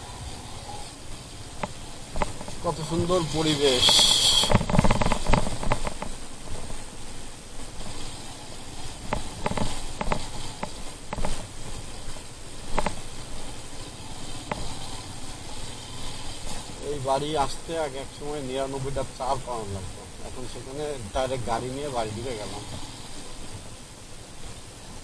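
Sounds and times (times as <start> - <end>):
wind hiss over microphone: 0.0 - 25.0
sharp knocks and clicks: 1.6 - 2.6, 3.8 - 6.8, 9.0 - 11.5, 12.7 - 13.0.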